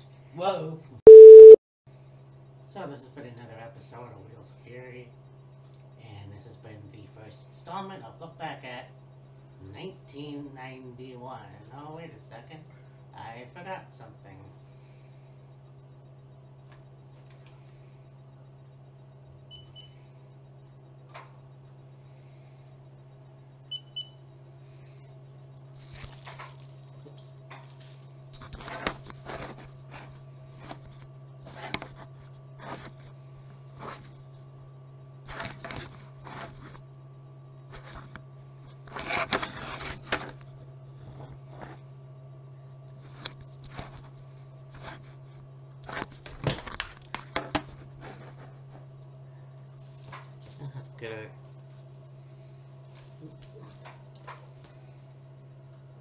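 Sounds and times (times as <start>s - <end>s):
low electrical hum: 0.0s - 56.0s
short high beeps: 1.1s - 1.6s.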